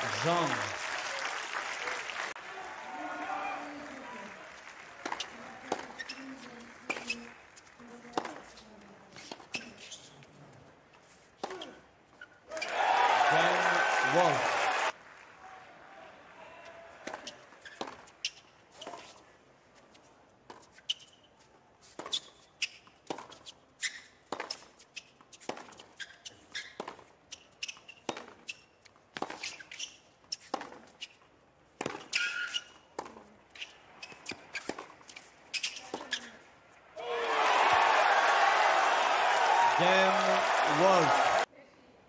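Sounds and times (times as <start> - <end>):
tennis balls struck and bouncing: 4.9 - 9.8, 11.4 - 11.8, 17.0 - 19.2, 21.8 - 36.5
shoe squeaks: 5.2 - 7.3, 8.5 - 10.3, 17.2 - 19.2, 20.6 - 36.5.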